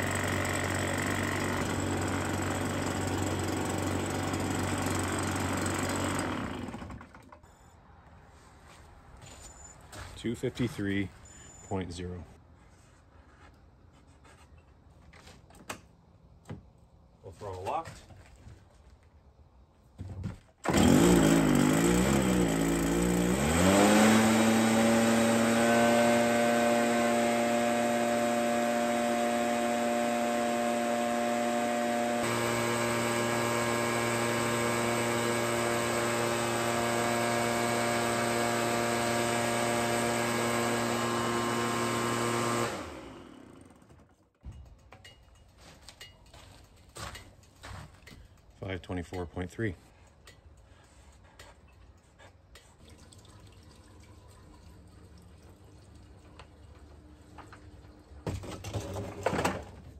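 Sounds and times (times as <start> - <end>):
leaf blower engine droning: 0.0 - 7.2, 20.6 - 44.2.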